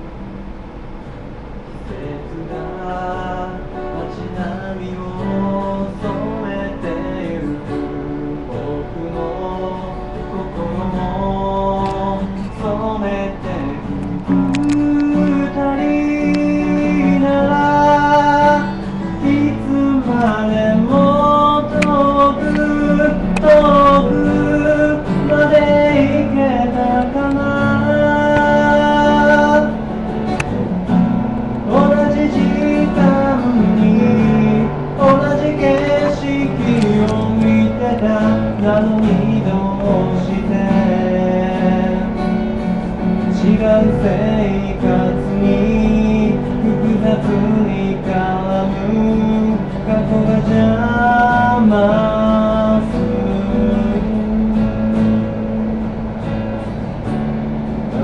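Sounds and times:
acoustic guitar strummed: 0.0 - 58.0.

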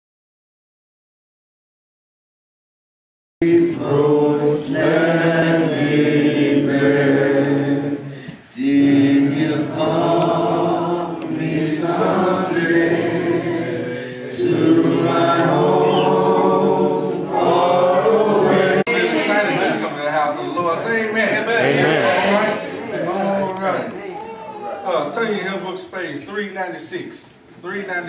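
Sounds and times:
group singing a cappella: 3.4 - 20.0, 20.6 - 23.4.

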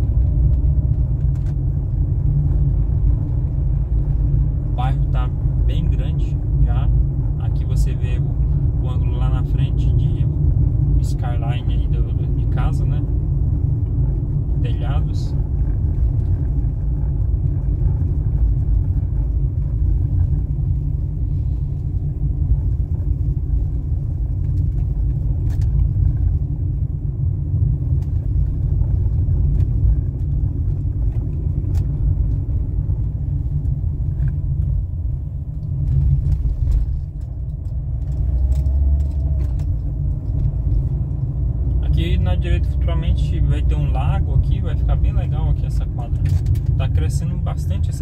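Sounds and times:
car engine and tyres rumbling: 0.0 - 48.0.

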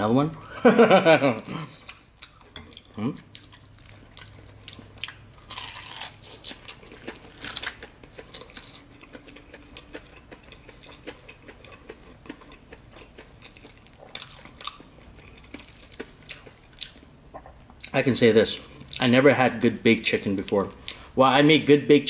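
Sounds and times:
person chewing crunchy chicken: 1.6 - 18.0.

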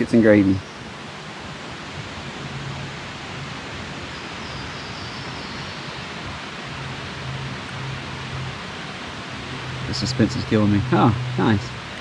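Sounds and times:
mountain creek rushing: 0.0 - 12.0.

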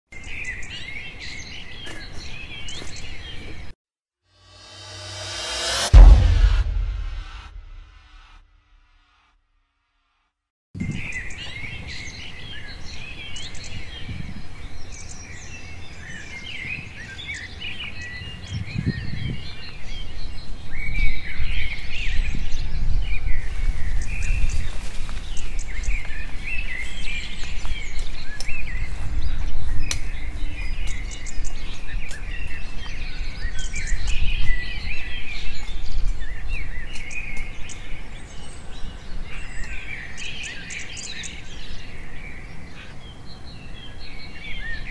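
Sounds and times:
wild birds chirping: 23.8 - 44.9.

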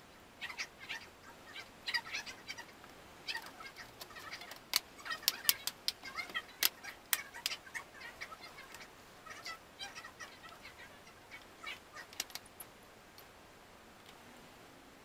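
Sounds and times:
birds chirping: 0.0 - 13.3
plastic clips snapping: 3.4 - 7.6, 12.1 - 12.5.

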